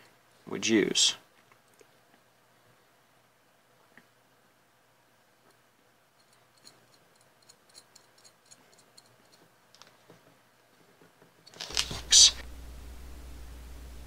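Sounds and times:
faint metallic ticking: 5.5s - 9.6s.

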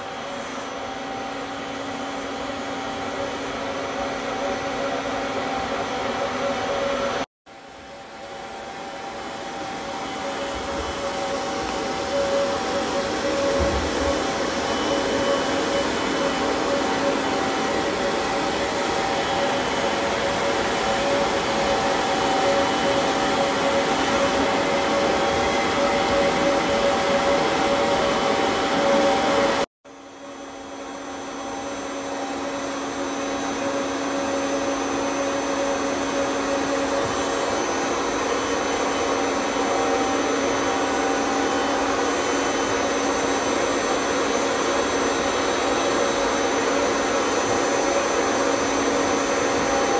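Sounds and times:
vacuum cleaner running: 0.0s - 49.9s.

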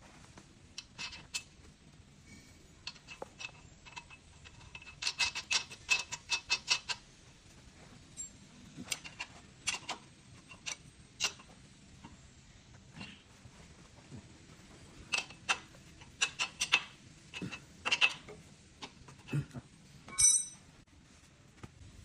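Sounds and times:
hand tools clicking on metal: 2.8s - 7.0s, 8.8s - 11.5s, 15.1s - 19.3s.

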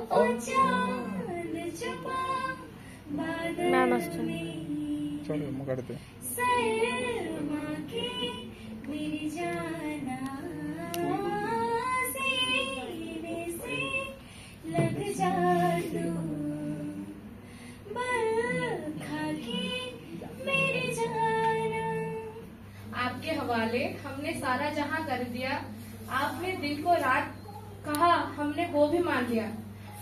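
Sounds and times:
young woman singing solo: 0.0s - 5.3s.

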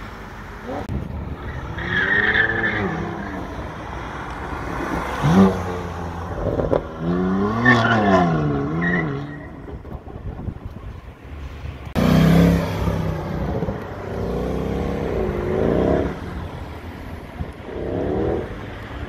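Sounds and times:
car engine revving hard: 12.0s - 16.3s.

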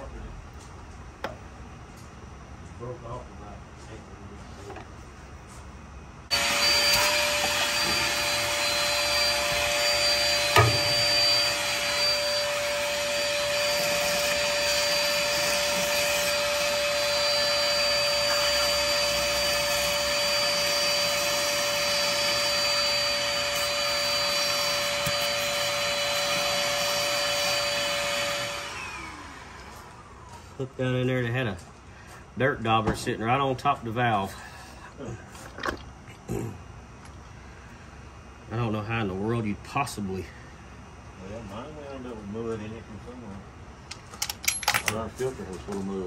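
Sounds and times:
shop vacuum whining: 6.3s - 33.4s.

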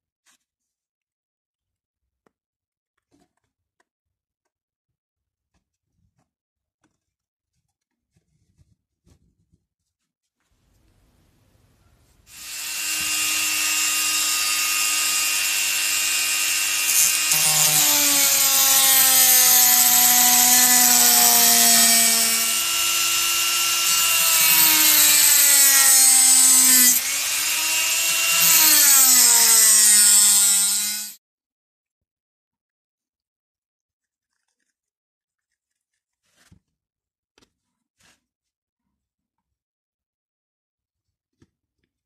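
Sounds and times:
rotary tool cutting plastic pipe: 12.3s - 31.2s.

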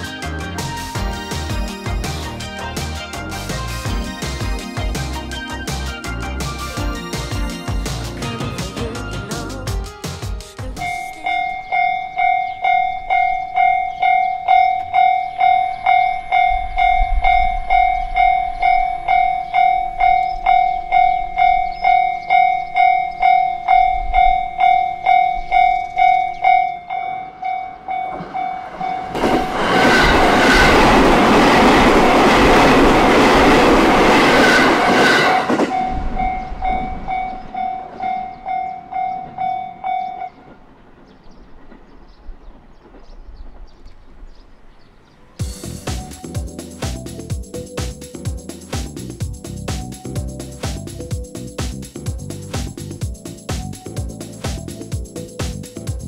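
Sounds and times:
train wheels on rails: 5.8s - 44.6s, 45.4s - 56.0s
level crossing alarm clanging: 10.8s - 33.0s, 34.3s - 40.6s.

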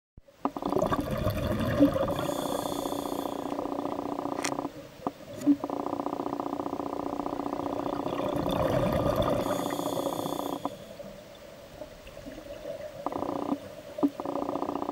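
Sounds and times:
diver's breath bubbling: 0.6s - 3.9s, 7.4s - 11.0s.

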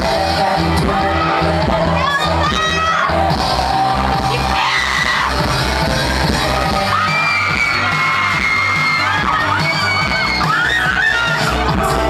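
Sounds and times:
man singing into microphone: 0.0s - 4.6s
pop dance track over sound system: 0.0s - 12.0s
fans screaming: 0.2s - 12.0s.

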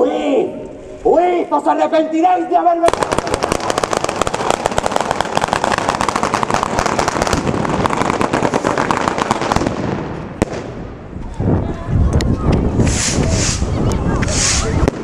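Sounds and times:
rapid crackle of sharp bangs: 2.9s - 10.9s.

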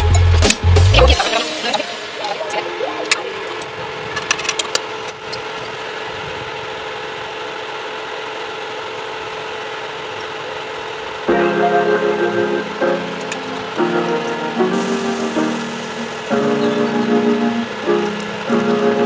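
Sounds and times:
background music: 0.0s - 3.6s, 11.3s - 19.0s.

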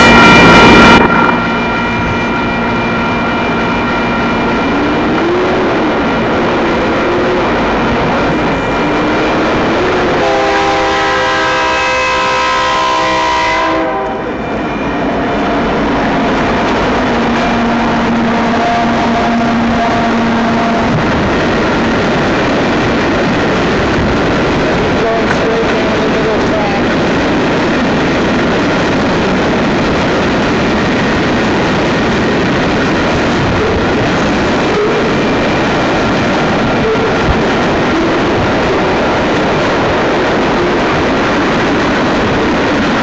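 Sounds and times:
locomotive horn: 0.0s - 21.1s, 33.4s - 35.8s, 36.6s - 38.5s
freight train rumbling: 0.0s - 43.0s.

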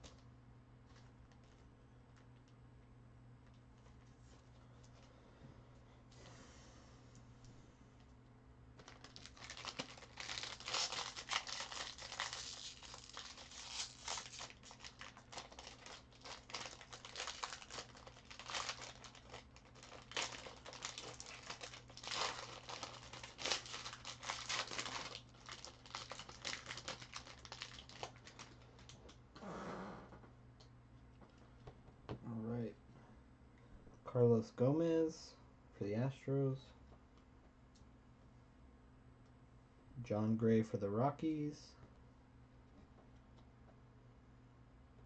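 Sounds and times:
wrapper being torn and crinkled: 8.8s - 29.1s.

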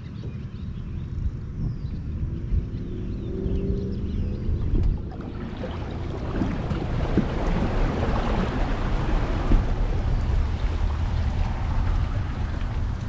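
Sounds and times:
pickup truck towing boat trailer: 4.8s - 13.0s.

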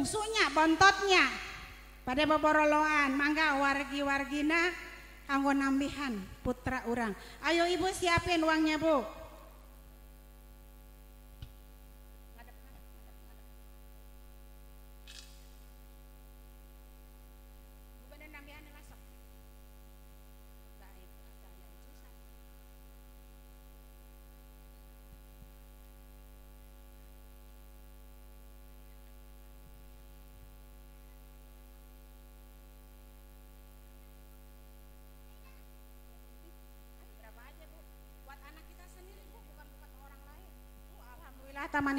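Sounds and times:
electrical mains hum: 0.0s - 41.9s
sharp click: 15.0s - 15.6s
brief hiss: 15.0s - 15.7s.

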